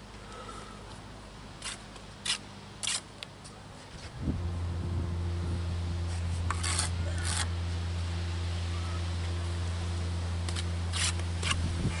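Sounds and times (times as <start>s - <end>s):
trowel scraping mortar: 1.6s - 3.1s, 6.1s - 7.5s, 10.5s - 11.6s
low hum: 4.0s - 12.0s.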